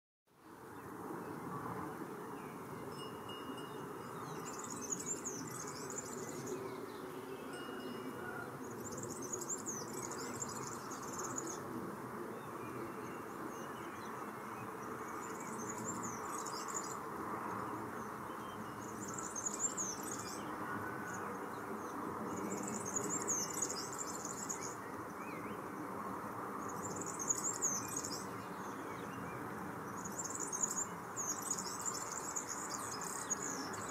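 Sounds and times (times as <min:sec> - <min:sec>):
bird singing jingling song: 0:02.5 - 0:11.6, 0:15.1 - 0:20.6, 0:22.3 - 0:25.6, 0:26.7 - 0:33.9.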